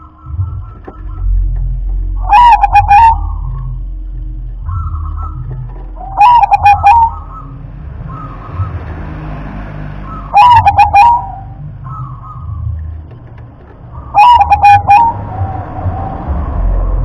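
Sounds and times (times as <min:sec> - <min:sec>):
dove cooing: 0:00.0 - 0:03.8, 0:04.6 - 0:08.7, 0:10.1 - 0:12.8, 0:13.9 - 0:16.6.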